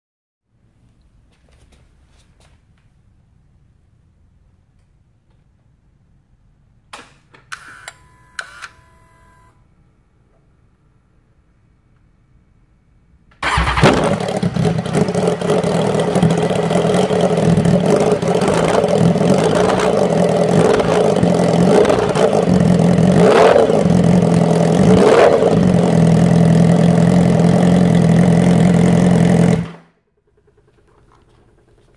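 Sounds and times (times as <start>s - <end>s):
engine throttle blips: 13.4s - 31.9s
motorcycle engine idling: 13.4s - 31.9s.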